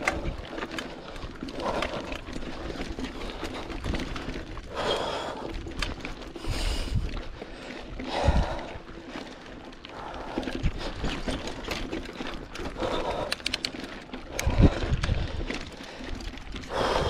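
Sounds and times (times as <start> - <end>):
mountain bike rattling over rocks: 0.0 - 17.0
rider breathing hard: 0.0 - 17.0
sharp clicks: 13.2 - 15.2.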